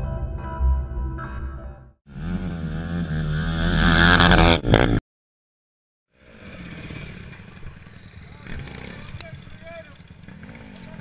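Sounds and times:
motorcycle engines running: 2.1 - 5.0, 6.2 - 11.0
off-road engine revving hard: 2.1 - 5.0, 6.1 - 11.0.

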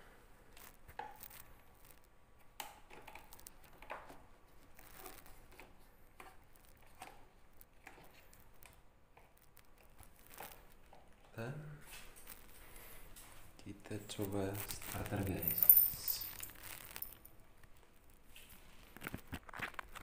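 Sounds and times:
hands handling motorcycle parts: 14.6 - 17.2.

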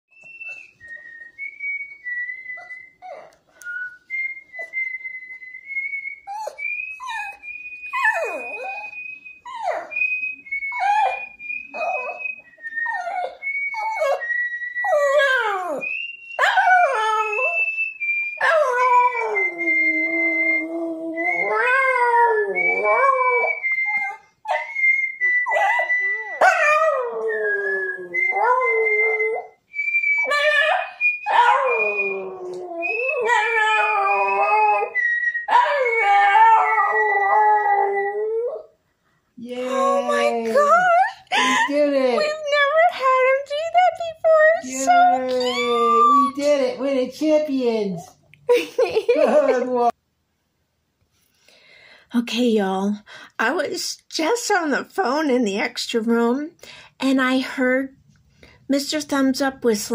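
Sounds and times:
man whistling a tune: 0.1 - 21.6, 22.6 - 26.4, 27.2 - 36.0.

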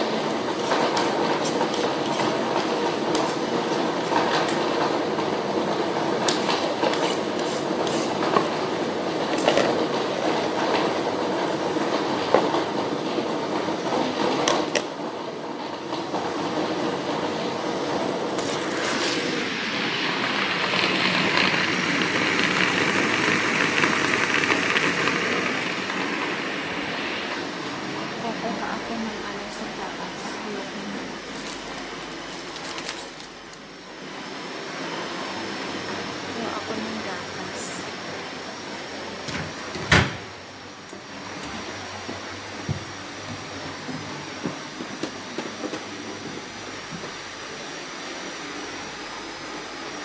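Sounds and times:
electric blender running: 16.2 - 28.1.

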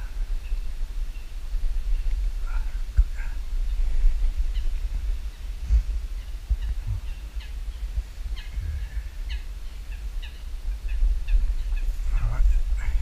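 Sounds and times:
birds chirping: 0.0 - 13.0
steady low rumble: 0.0 - 13.0.

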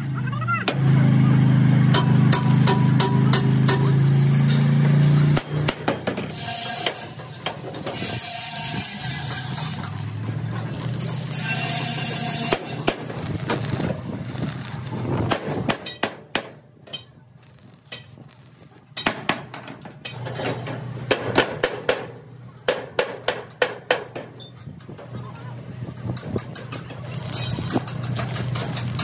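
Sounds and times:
arc welding crackling: 2.0 - 19.3, 24.9 - 29.0.

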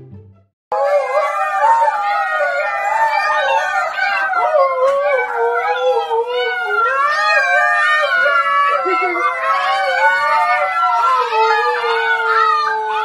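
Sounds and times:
dogs howling together: 0.7 - 13.0.

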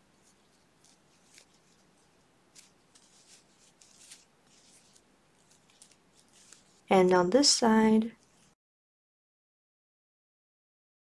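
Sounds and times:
yarn rustling with crochet hook: 0.0 - 8.6.

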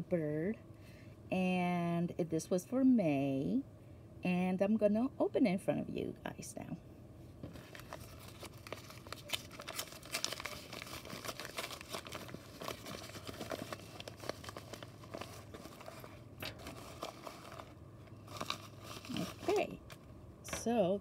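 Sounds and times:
plastic bag crinkling: 7.6 - 20.1.

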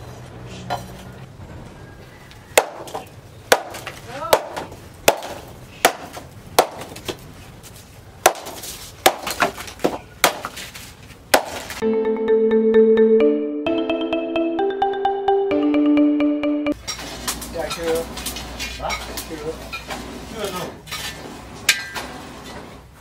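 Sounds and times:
knife chopping bamboo on wood: 2.6 - 7.2, 8.2 - 10.6, 11.3 - 11.7.

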